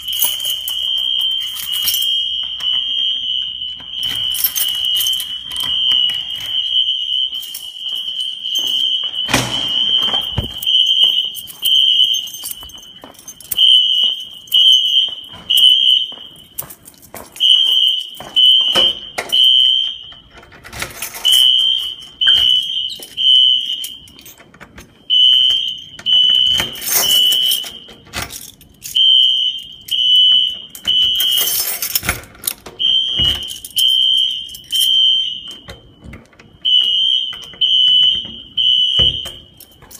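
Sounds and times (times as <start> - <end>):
fire alarm beeping: 0.0 - 39.9
knocks and rattles: 8.5 - 13.8.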